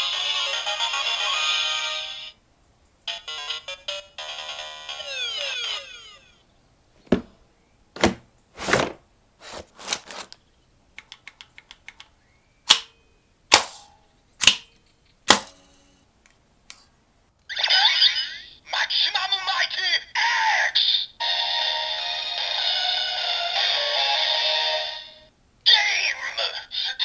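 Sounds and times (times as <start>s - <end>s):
electronic toy sound effect: 3.1s - 6.4s, 17.5s - 18.6s
plastic toy clicks and snaps: 11.0s - 12.1s, 12.7s - 12.9s, 14.4s - 14.7s.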